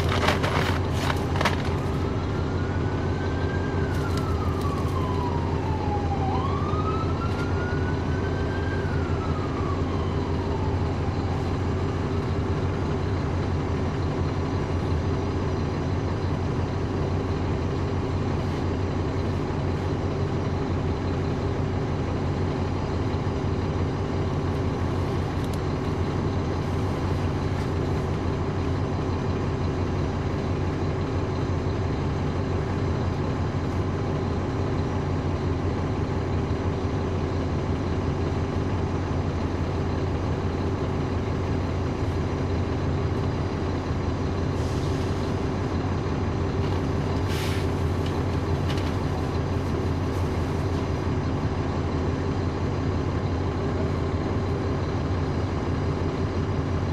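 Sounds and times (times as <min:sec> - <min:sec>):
bus diesel engine running: 0:00.0 - 0:56.9
short air hisses: 0:47.3 - 0:47.8.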